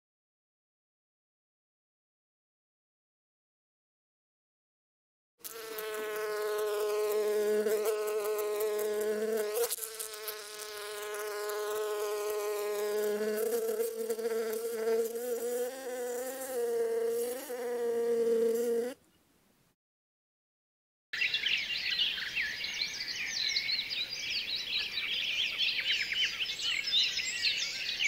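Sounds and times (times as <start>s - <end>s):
honeybees buzzing: 5.4s - 19.0s.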